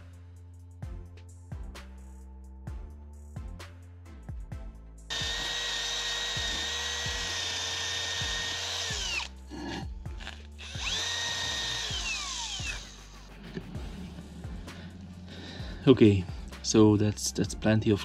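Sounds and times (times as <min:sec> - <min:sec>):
drill wire brush scrubbing metal: 0:05.1 - 0:13.2.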